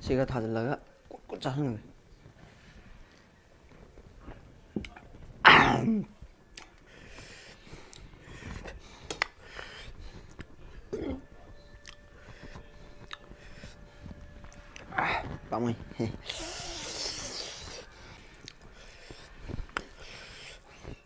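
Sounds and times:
man clearing throat: 0:05.5 - 0:06.1
wet sticky eating sounds: 0:11.8 - 0:12.1, 0:13.0 - 0:13.3, 0:16.2 - 0:20.5.

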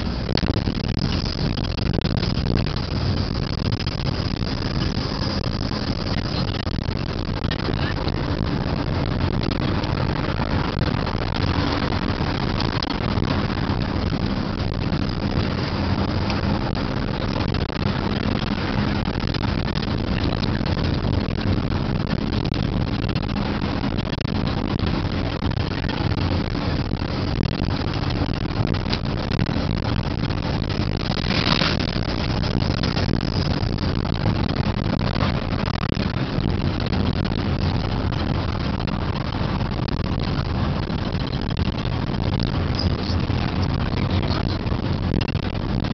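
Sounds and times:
car engine hum: 0:00.0 - 0:45.9
road noise: 0:00.0 - 0:45.9.

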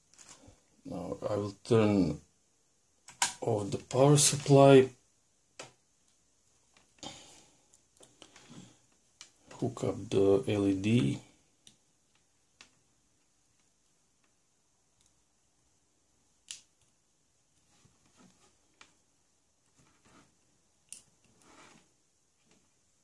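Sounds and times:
sharp clicks of clips: 0:03.1 - 0:03.4.

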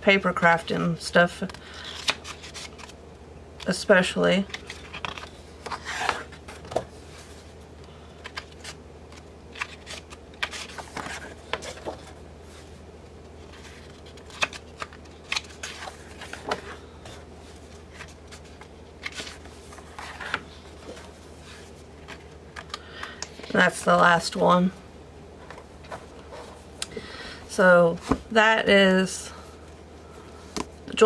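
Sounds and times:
cardstock pages turning: 0:01.8 - 0:03.0, 0:04.4 - 0:06.8, 0:08.2 - 0:12.2, 0:13.4 - 0:16.8, 0:17.9 - 0:24.0.

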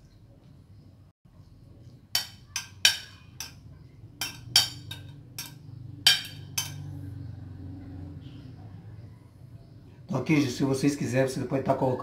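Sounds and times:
metal spoon clinking on glass: 0:02.2 - 0:06.9.

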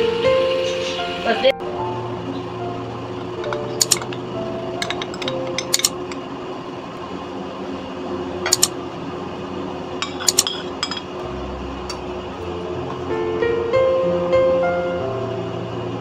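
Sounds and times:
spoon and glass bowls clinking: 0:03.4 - 0:06.2, 0:10.0 - 0:11.2.

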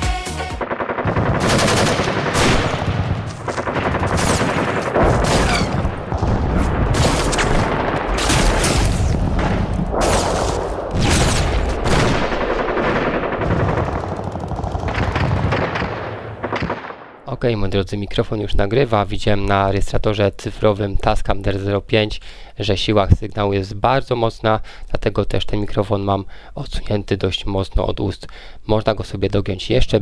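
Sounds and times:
video game gunfire: 0:00.3 - 0:17.2
heavy low rumble: 0:01.1 - 0:12.4.

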